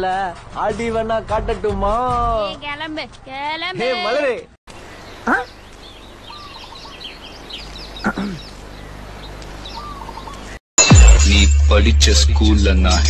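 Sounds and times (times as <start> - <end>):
birds chirping: 4.7 - 10.6.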